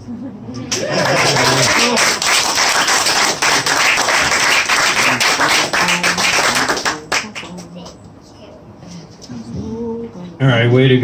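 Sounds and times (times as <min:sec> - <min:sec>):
audience applauding: 0:00.7 - 0:07.6.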